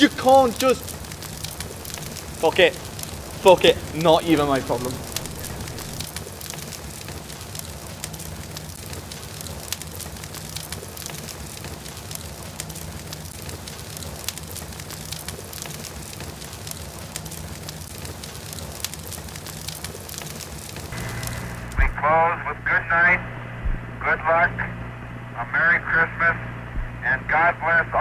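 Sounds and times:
fire crackling: 0.0 - 28.0
faint low hum: 1.3 - 6.1, 21.0 - 28.0.

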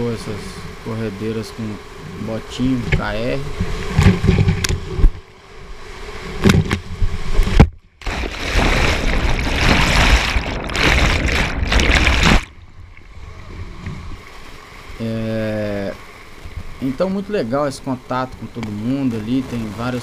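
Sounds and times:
water knocking on microphone: 2.9 - 5.2, 6.4 - 12.6
whitewater rushing and splashing: 8.0 - 12.6.

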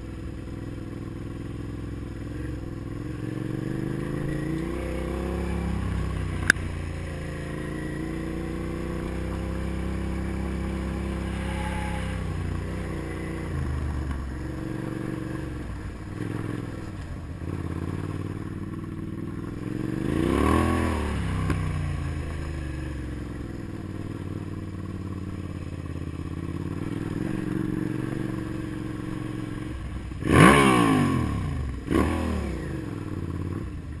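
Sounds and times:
motorcycle engine revving: 0.0 - 34.0
sharp click: 6.4 - 6.6.

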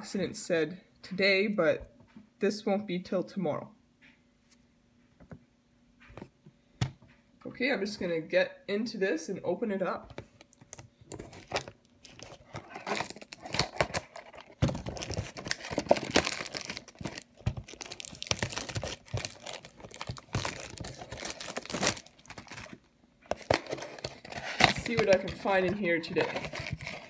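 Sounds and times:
packaging crinkling and tearing: 10.4 - 27.0.

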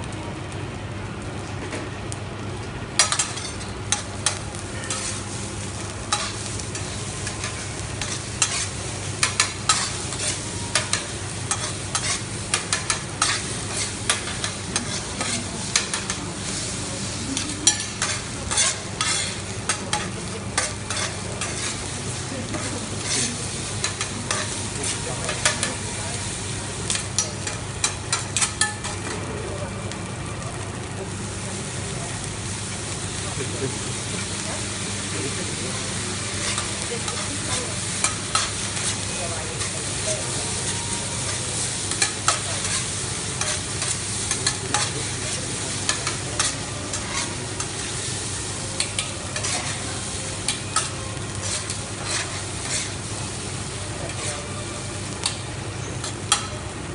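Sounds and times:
food sizzling in a frying pan: 0.0 - 56.9
utensil scraping a pan: 7.4 - 16.2, 17.8 - 19.4, 20.0 - 21.8, 49.0 - 49.9, 50.5 - 53.0.

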